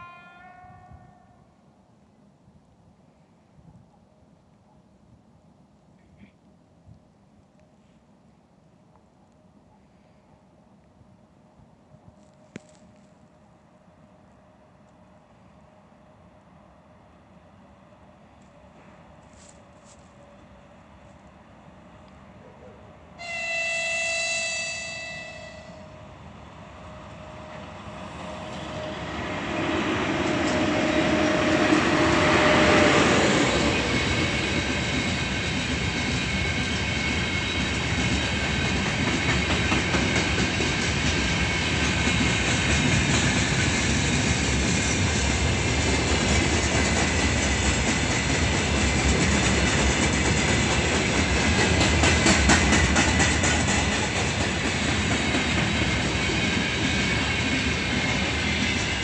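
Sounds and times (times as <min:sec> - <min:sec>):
locomotive horn: 0:00.0 - 0:01.4, 0:23.2 - 0:26.0
locomotive passing rumble: 0:25.8 - 0:59.0.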